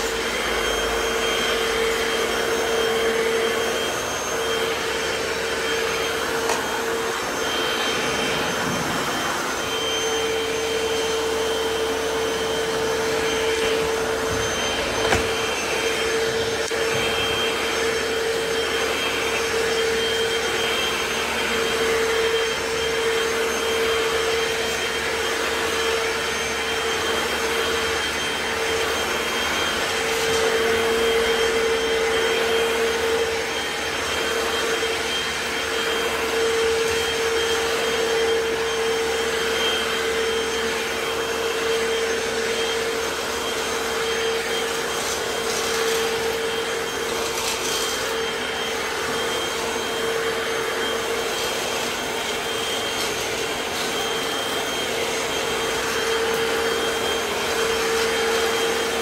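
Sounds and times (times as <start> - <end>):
floor cleaner motor hum and whine: 0.0 - 59.0
floor cleaner sucking up water: 0.0 - 59.0.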